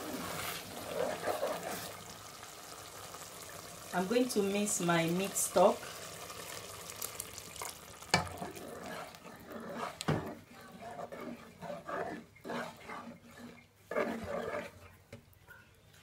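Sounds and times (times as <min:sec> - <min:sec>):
ladle stirring thick sauce: 0:00.0 - 0:02.2, 0:05.7 - 0:16.0
stock pouring into pot: 0:05.4 - 0:10.2.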